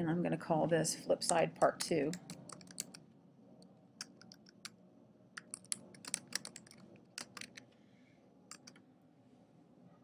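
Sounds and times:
typing on computer keyboard: 2.1 - 3.0, 4.0 - 4.8, 5.4 - 7.7, 8.5 - 8.8.

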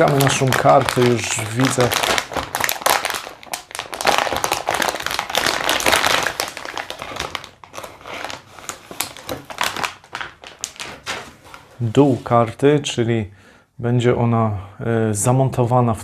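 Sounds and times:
plastic bag crinkling: 0.0 - 12.3.

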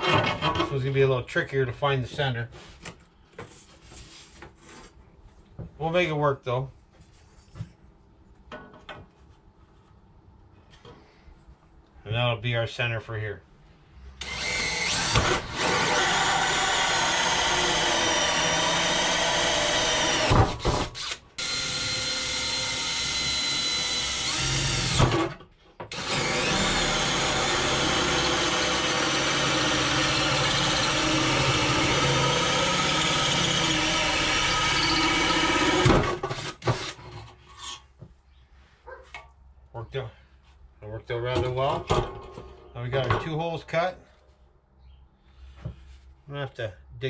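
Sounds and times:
cordless drill boring wood: 14.2 - 37.0.

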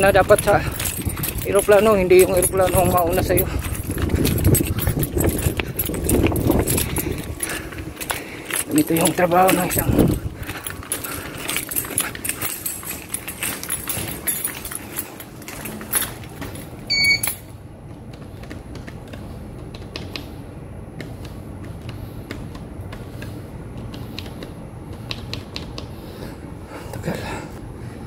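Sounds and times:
rattling clicks and knocks: 0.0 - 17.4
steady low hum: 0.0 - 28.0
short electronic beep: 16.9 - 17.4.

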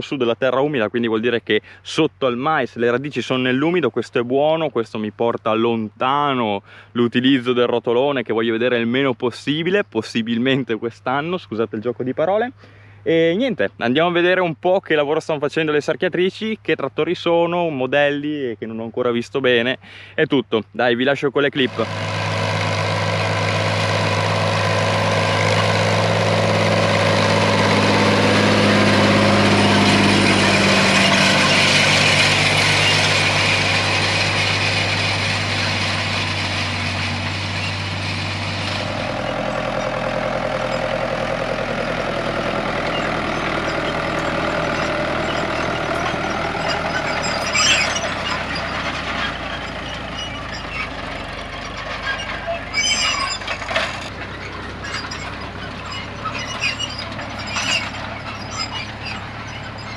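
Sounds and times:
tractor diesel engine running: 21.6 - 59.9.

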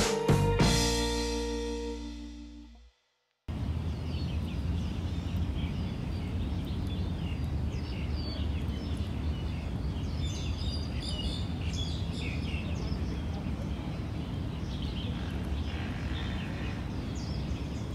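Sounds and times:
small birds chirping: 3.5 - 17.9.

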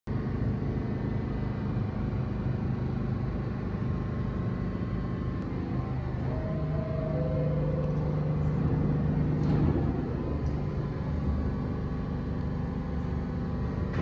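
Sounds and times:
subway train humming: 0.1 - 14.0
held electrical tones: 4.7 - 14.0.

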